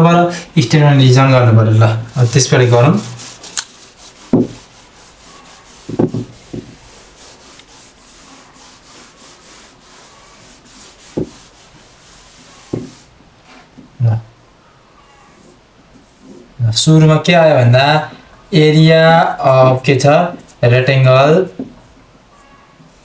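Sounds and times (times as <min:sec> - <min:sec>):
eraser scraping on whiteboard: 0:01.9 - 0:13.8, 0:15.3 - 0:16.5
short thuds: 0:04.3 - 0:04.6, 0:05.9 - 0:06.8.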